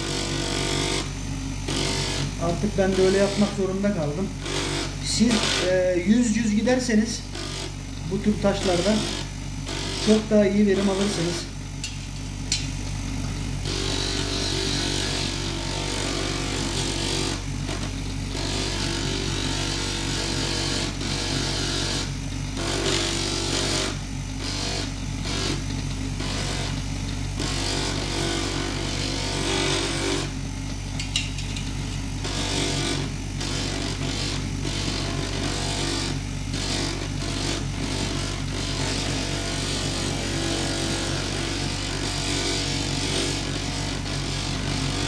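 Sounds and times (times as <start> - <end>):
bench grinder motor hum: 0.0 - 45.0
stone grinding on sanding disc: 1.7 - 7.6, 8.3 - 11.4.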